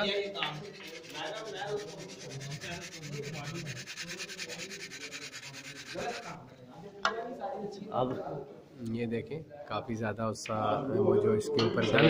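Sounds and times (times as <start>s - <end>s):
cue rubbed on sandpaper: 0.0s - 6.4s.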